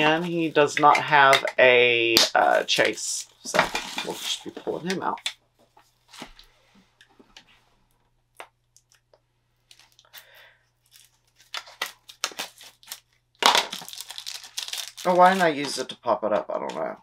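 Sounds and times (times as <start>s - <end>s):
packaging clicks and rustles: 9.7s - 15.8s.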